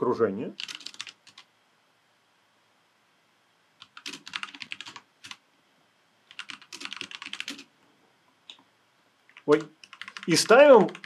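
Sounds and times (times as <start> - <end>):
computer keyboard typing: 0.6 - 1.5, 3.8 - 5.4, 6.3 - 7.7, 9.3 - 11.0.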